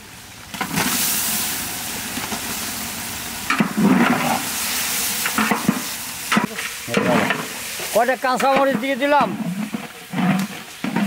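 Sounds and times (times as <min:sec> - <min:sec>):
meat sizzling in hot oil: 0:00.0 - 0:10.9
ladle scraping metal pot: 0:08.4 - 0:11.0.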